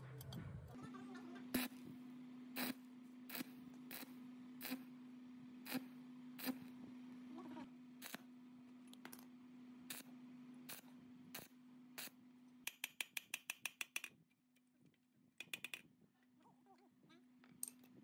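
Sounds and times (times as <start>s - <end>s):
chipping hammer tapping metal: 12.7s - 14.1s
sharp clicks: 15.4s - 15.8s.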